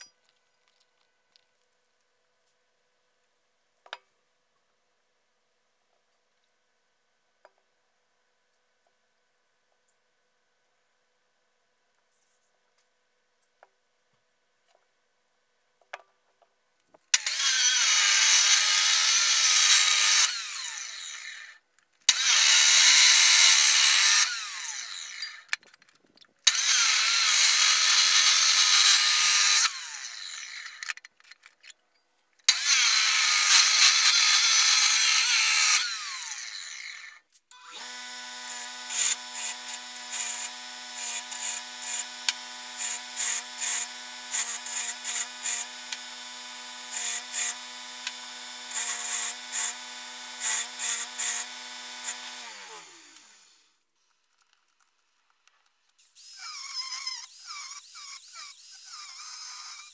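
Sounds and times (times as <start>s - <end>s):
bench grinder humming: 17.2s - 25.5s, 26.5s - 30.8s, 32.5s - 53.6s
chop saw grinding through pipe: 17.2s - 25.6s, 26.5s - 31.0s, 32.5s - 53.6s, 56.0s - 59.9s
saw disc winding down: 17.2s - 25.6s.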